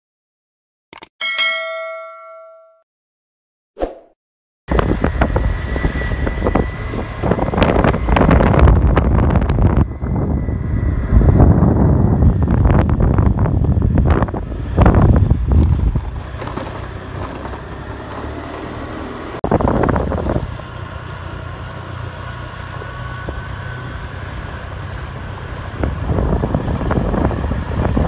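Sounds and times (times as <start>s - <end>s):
wind buffeting microphone: 4.7s - 18.0s, 19.4s - 21.0s, 22.8s - 28.0s.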